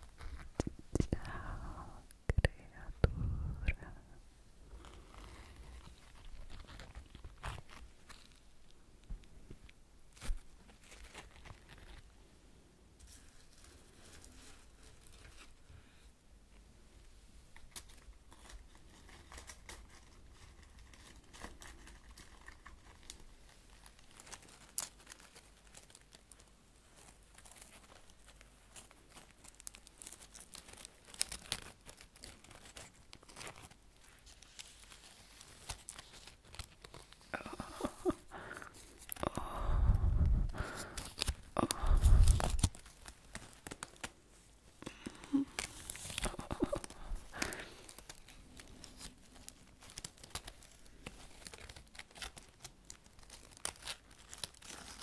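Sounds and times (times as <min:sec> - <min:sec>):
dry leaf crinkling: 0:04.7 - 0:08.8, 0:17.6 - 0:39.2, 0:40.6 - 0:55.0.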